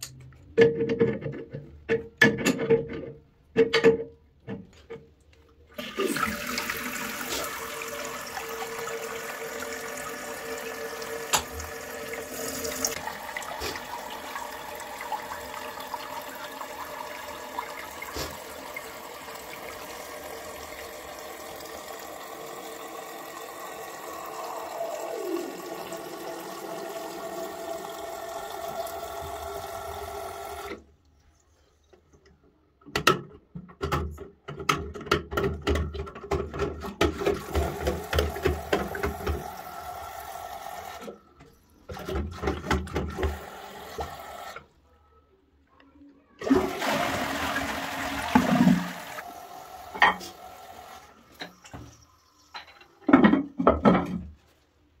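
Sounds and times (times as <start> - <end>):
toilet cistern flushing and refilling: 5.7 - 30.9, 33.8 - 44.8, 46.4 - 54.4.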